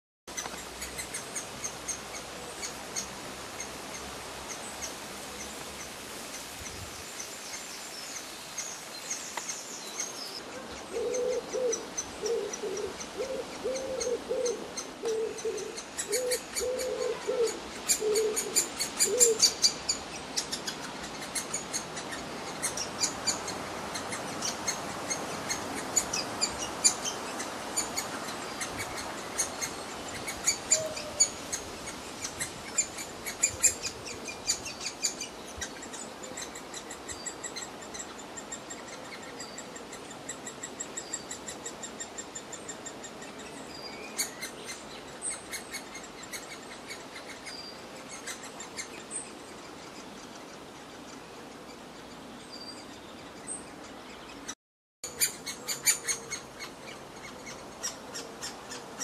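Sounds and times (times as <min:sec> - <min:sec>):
woodpecker chick begging calls: 0:10.9 - 0:39.7.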